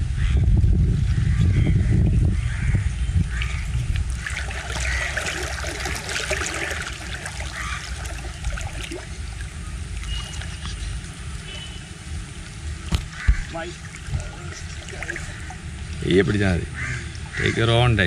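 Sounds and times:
wind rumble on microphone: 0.0s - 7.3s, 7.9s - 17.6s
small splashes and trickles: 3.3s - 18.0s
river water rushing: 4.1s - 16.0s.

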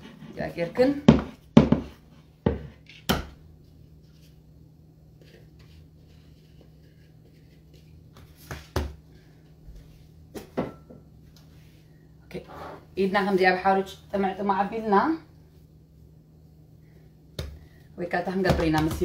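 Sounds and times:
faint steady hum: 0.0s - 19.0s
knocks and thumps on wooden board: 1.1s - 1.9s.

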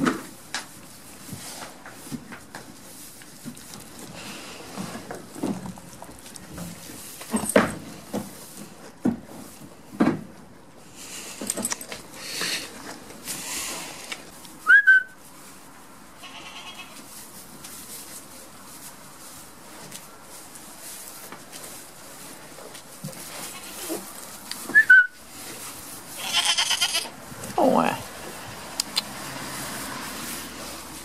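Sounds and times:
hay rustling: 12.2s - 31.0s
short high whistle: 14.6s - 15.2s, 24.7s - 25.2s.

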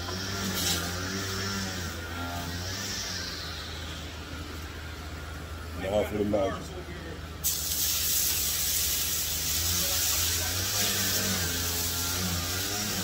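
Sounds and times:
meat sizzling on a griddle: 7.4s - 13.0s.

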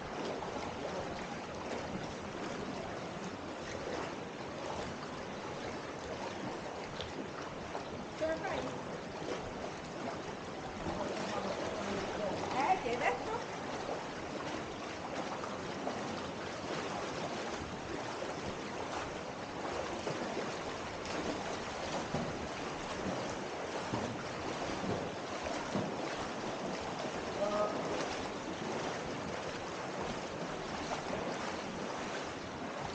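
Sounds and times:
river water rushing and splashing: 0.0s - 32.9s.

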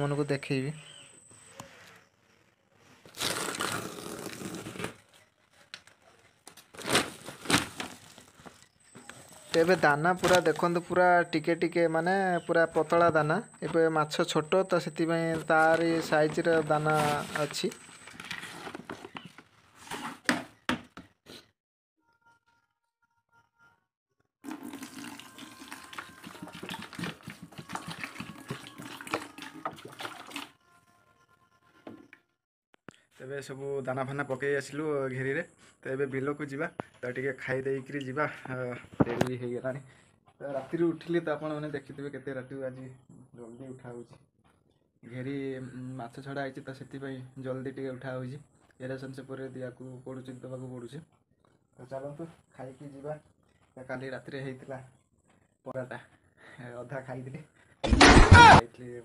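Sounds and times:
plastic sack crinkling and tearing: 3.0s - 5.2s, 5.8s - 8.6s, 15.6s - 19.0s
plastic crackles: 3.0s - 10.8s, 15.4s - 19.5s
plastic rustling: 3.0s - 10.8s, 15.3s - 20.0s
water pouring into plastic bucket: 24.4s - 30.5s.

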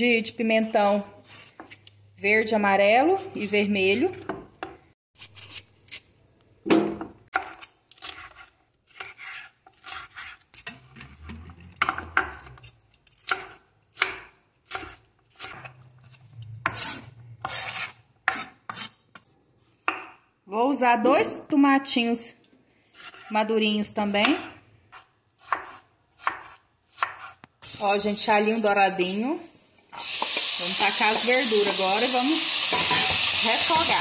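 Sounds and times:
knife chopping on wooden board: 13.2s - 15.7s, 19.8s - 20.2s, 24.2s - 27.4s.

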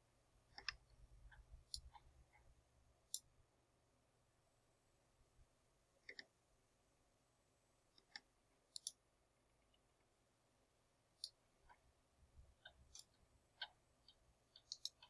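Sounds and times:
computer mouse clicks: 0.5s - 2.5s, 3.1s - 3.3s, 6.0s - 6.3s, 8.0s - 9.0s, 11.2s - 11.8s, 12.6s - 15.0s.

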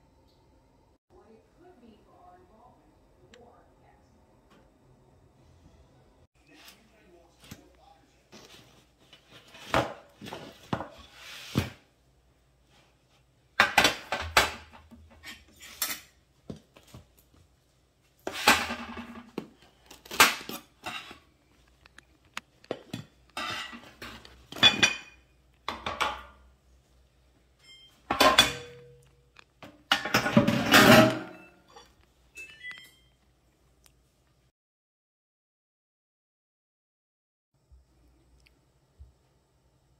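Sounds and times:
baking sheet and utensils clanking: 13.6s - 16.2s, 18.2s - 21.3s, 22.7s - 26.4s, 27.8s - 29.0s, 29.8s - 32.9s.

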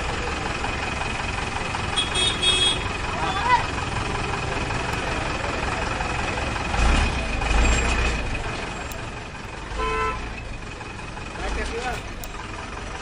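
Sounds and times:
tractor engine running: 0.0s - 13.0s
horn honk: 1.9s - 3.5s, 9.7s - 10.3s.

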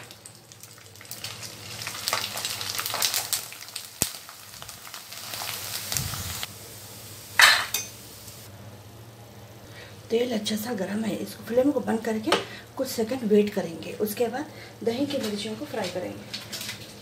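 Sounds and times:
food sizzling in hot oil: 0.0s - 8.5s.

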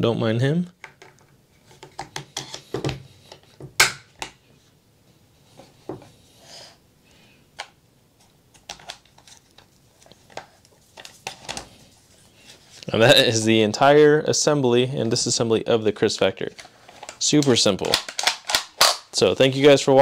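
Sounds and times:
gun parts clicking and knocking: 17.0s - 19.0s.

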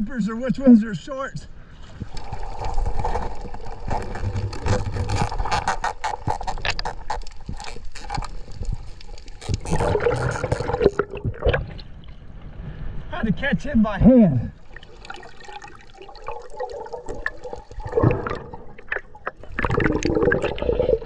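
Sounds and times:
sharp underwater clicks and crackles: 1.8s - 12.5s, 14.7s - 21.0s
underwater rush of water: 14.5s - 21.0s.

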